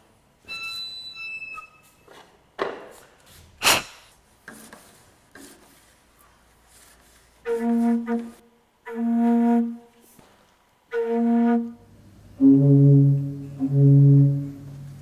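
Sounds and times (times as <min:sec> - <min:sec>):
organ pipe steady note: 0:11.1 - 0:15.0.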